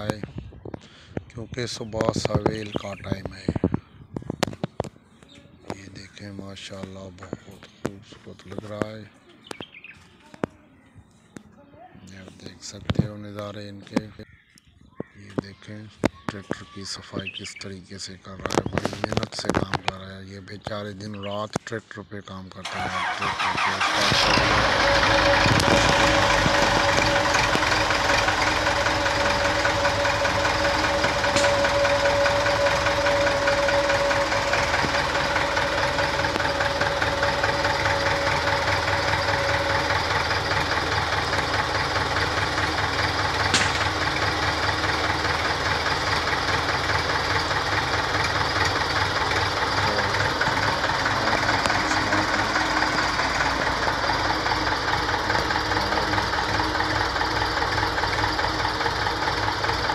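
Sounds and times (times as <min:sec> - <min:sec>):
diesel tractor engine idling: 0:00.0 - 0:04.1, 0:04.7 - 0:10.0, 0:22.5 - 0:59.9
steady whine: 0:23.8 - 0:59.9.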